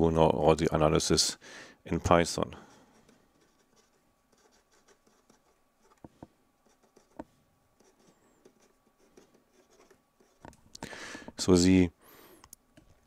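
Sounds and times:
pen scratching on paper: 2.9 - 10.5.

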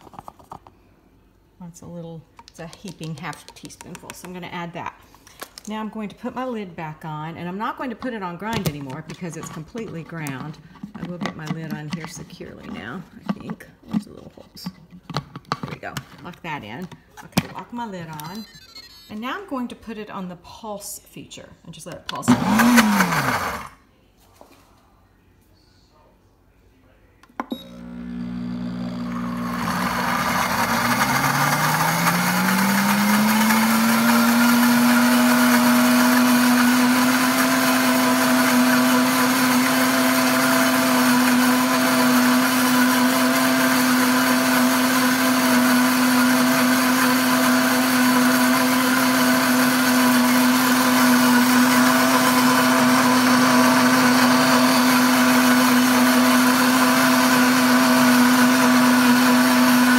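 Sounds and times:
blender motor whining: 18.0 - 19.2, 22.2 - 23.7, 27.6 - 59.9.

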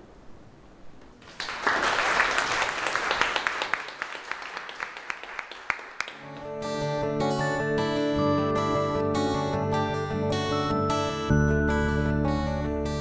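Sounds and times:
audience applause: 1.2 - 6.5.

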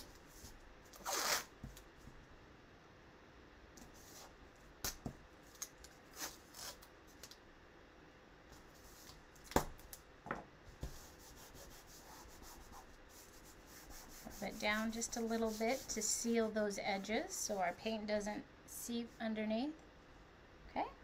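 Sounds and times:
masking tape rustling and scraping: 0.0 - 1.9, 3.8 - 7.3, 10.8 - 17.9.

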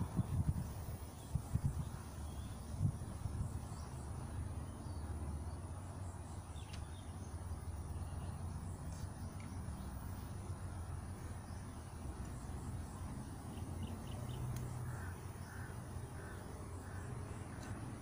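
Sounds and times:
low wind rumble on microphone: 0.0 - 5.8.

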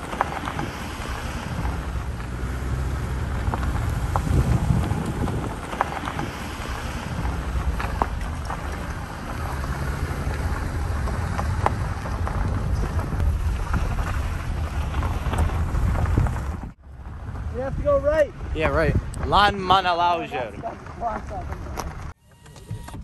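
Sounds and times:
vehicle driving on gravel: 0.0 - 23.0
wind buffeting microphone: 0.0 - 23.0.

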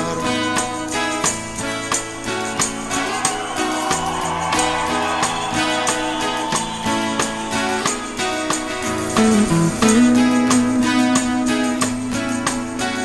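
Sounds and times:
strummed acoustic guitar: 0.0 - 13.0.

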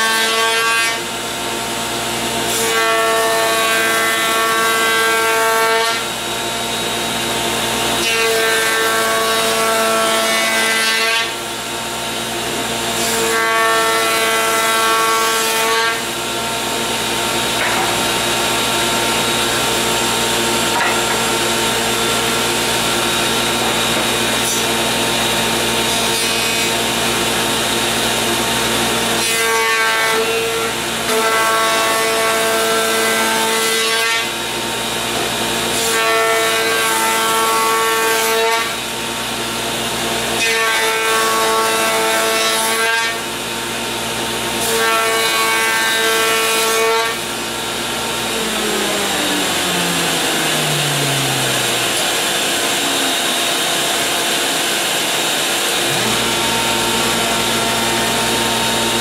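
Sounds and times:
dust collector running: 0.0 - 59.0
spindle shaper cutting wood: 12.4 - 28.0, 44.6 - 59.0
machine winding down: 48.3 - 59.0.

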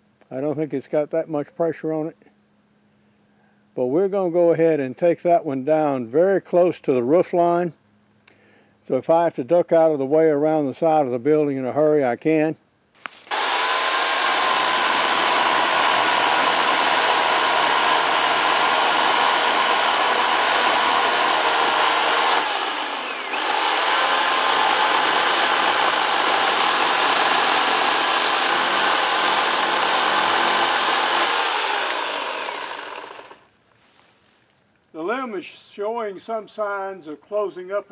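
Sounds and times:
electric chainsaw cutting wood: 13.1 - 33.5.

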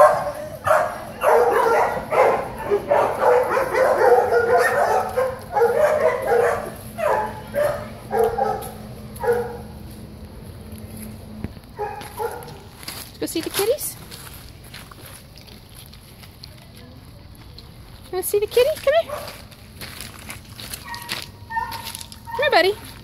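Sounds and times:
dog barking: 0.0 - 9.8, 11.8 - 12.7, 19.1 - 19.4, 20.8 - 22.6.

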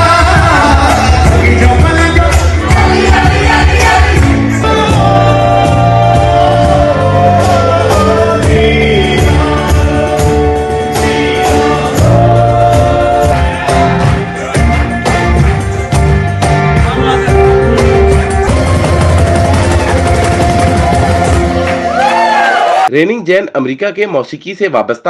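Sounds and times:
voices singing: 0.0 - 14.7
drum beat: 0.0 - 22.1
bass: 0.0 - 25.0.

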